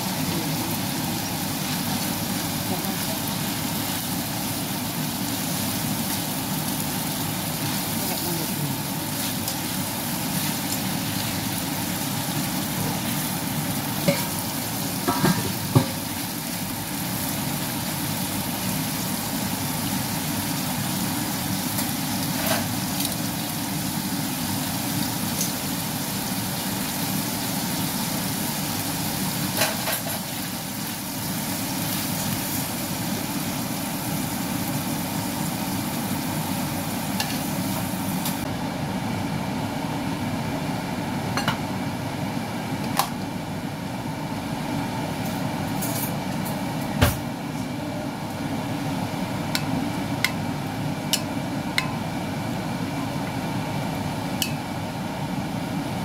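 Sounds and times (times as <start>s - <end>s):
beef sizzling in a pan: 0.0s - 38.5s.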